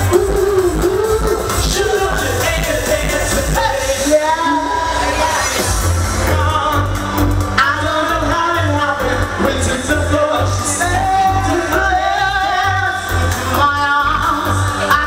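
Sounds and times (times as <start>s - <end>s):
male group singing into microphones: 0.0s - 15.0s
pop music with heavy bass beat: 0.0s - 15.0s.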